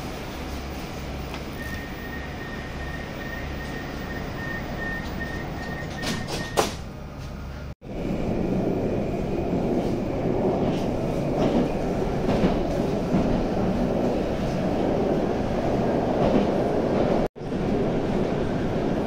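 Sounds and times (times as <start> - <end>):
train rumble with wheel clatter: 0.0 - 19.0
train doors shutting: 0.1 - 7.6
door warning beeps: 1.6 - 6.8.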